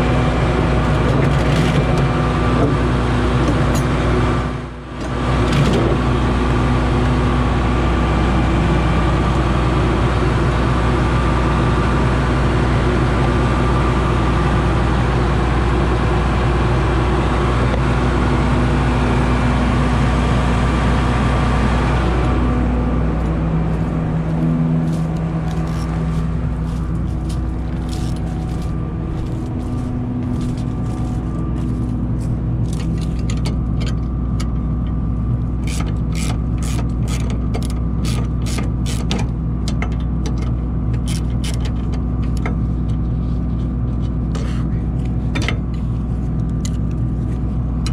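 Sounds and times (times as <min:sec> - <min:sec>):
combine harvester engine running: 0:00.0 - 0:47.9
sharp clicks and knocks: 0:35.6 - 0:43.0.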